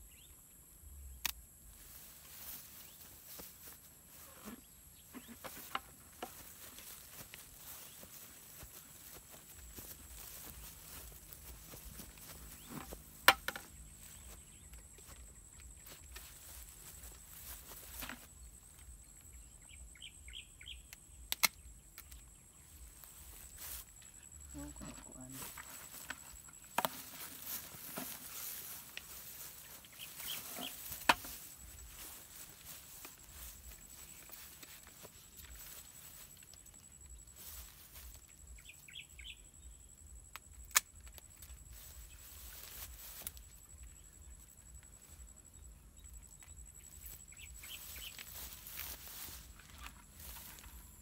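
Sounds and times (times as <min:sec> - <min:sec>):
leaves rustling: 0:01.7 - 0:18.3, 0:22.8 - 0:38.9, 0:41.2 - 0:43.7, 0:46.9 - 0:51.0
bird chirping: 0:18.4 - 0:22.9, 0:38.5 - 0:39.8, 0:46.0 - 0:48.8
pruning shears snapping shut: 0:21.3 - 0:22.2.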